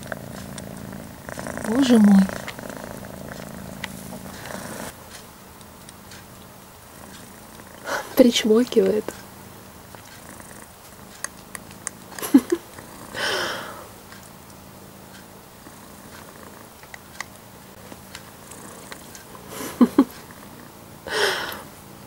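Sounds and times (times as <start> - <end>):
cat purring: 0.0 - 21.7
kitten suckling smacks: 11.0 - 12.9
breathy sound: 13.1 - 13.9, 21.1 - 21.7.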